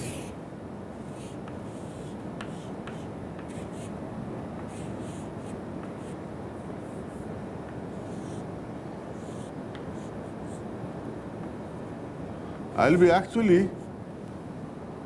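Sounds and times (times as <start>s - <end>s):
chalk scratching on a chalkboard: 0.0s - 0.3s, 1.0s - 4.0s, 4.6s - 6.2s
low room hum: 0.0s - 15.0s
chalk taps: 1.1s - 3.9s, 4.6s - 6.2s, 7.6s - 8.4s, 9.3s - 10.6s.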